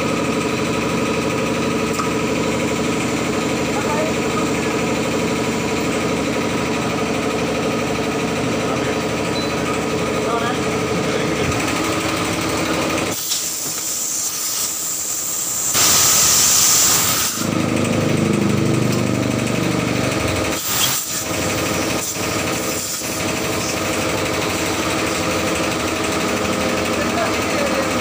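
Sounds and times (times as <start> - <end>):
air compressor running: 0.0 - 28.0
loud air hiss: 13.1 - 17.5, 20.5 - 21.3.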